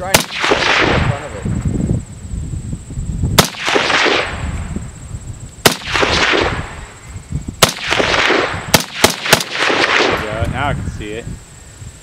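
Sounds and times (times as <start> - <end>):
rifle shots with echo: 0.0 - 1.4, 3.4 - 4.5, 5.6 - 7.0, 7.6 - 10.4.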